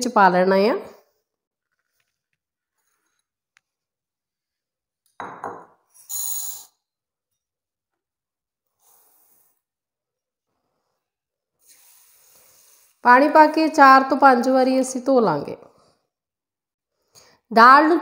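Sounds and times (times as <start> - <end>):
hiss of poured grains: 6.0 - 6.7.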